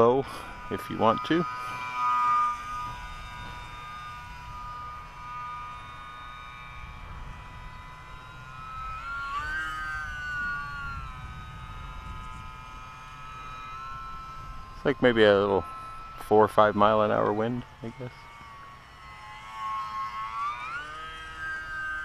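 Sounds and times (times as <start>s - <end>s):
model plane motor whining: 0.0s - 22.0s
wind rumble on microphone: 6.7s - 17.9s.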